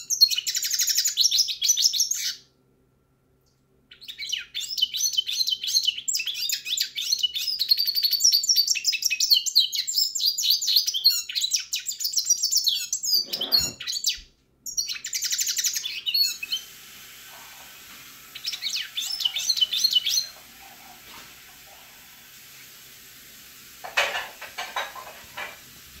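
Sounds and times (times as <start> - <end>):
bird twittering song: 3.9 - 16.6, 18.3 - 20.4.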